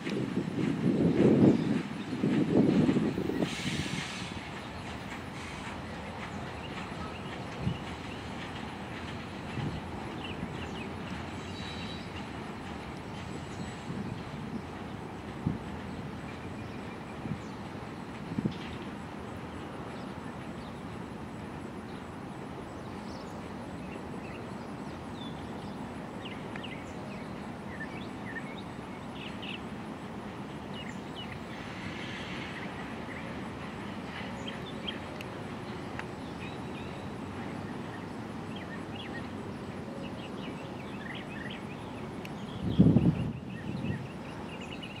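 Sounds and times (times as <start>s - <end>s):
freight train rumbling: 0.0s - 45.0s.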